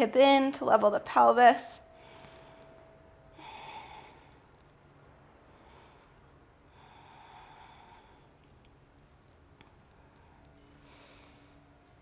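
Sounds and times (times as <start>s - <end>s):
woman breathing: 1.8s - 4.6s, 5.4s - 8.6s, 10.3s - 12.0s.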